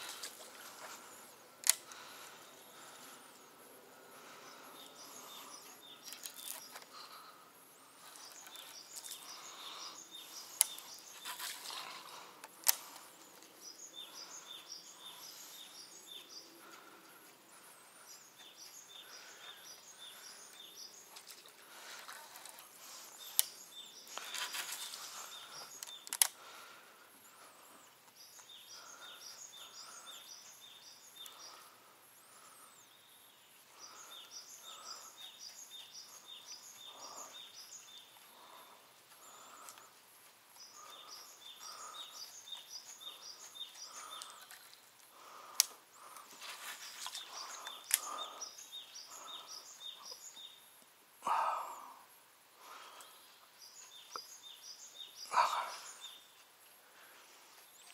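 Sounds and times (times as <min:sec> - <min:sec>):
songbirds chirping: 0:00.0 - 0:57.9
sharp clicks: 0:25.8 - 0:26.4.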